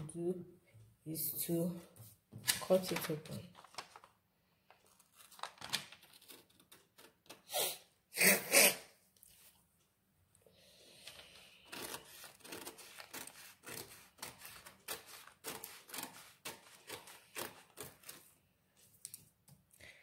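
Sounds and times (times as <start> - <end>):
scissors snipping paper: 11.7 - 18.3.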